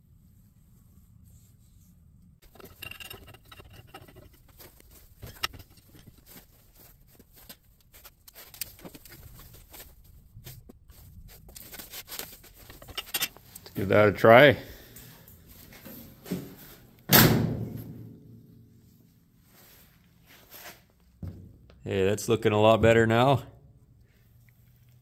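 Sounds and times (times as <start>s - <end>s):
clothing rustling: 0.2s - 13.8s
metal wrench clicks and scrapes: 2.4s - 6.2s, 11.6s - 13.7s.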